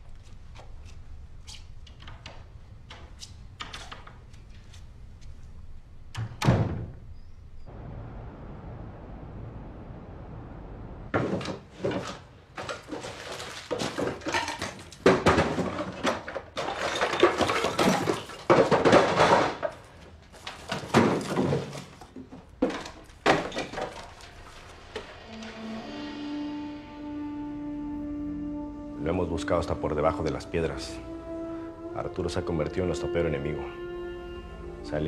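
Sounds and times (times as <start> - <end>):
furniture banging and slamming: 11.1 - 13.1, 13.7 - 19.8, 20.6 - 24.4
objects clattering: 11.1 - 25.6.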